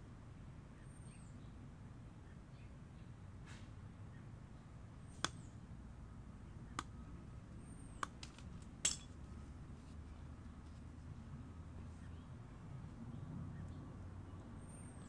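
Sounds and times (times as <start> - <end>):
metallic clicks of cutters on rebar: 8.0 - 9.2.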